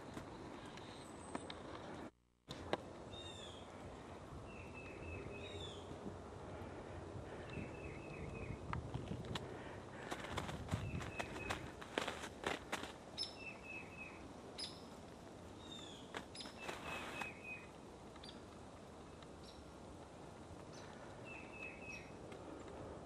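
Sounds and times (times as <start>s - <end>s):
small birds calling: 3.1s - 8.7s, 9.5s - 18.5s, 19.4s - 19.8s, 20.7s - 22.8s
footsteps crunching in snow: 9.0s - 13.2s, 16.1s - 17.5s.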